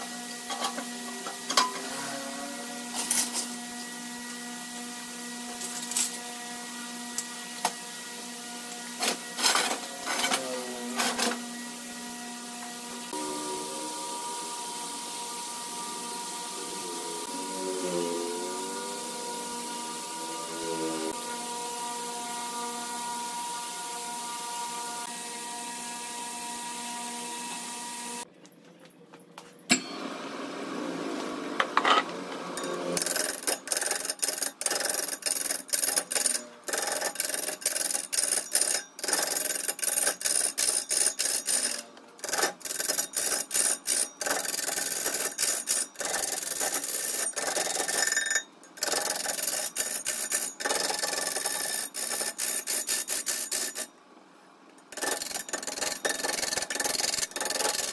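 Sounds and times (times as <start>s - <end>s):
wood lathe humming: 11.6s - 28.2s
tool scraping spinning wood: 31.8s - 53.9s, 54.9s - 57.9s.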